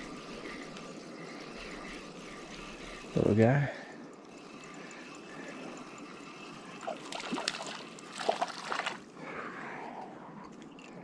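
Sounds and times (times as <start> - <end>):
water trickling and splashing: 0.0 - 9.2
short splashes and clicks: 6.7 - 9.0.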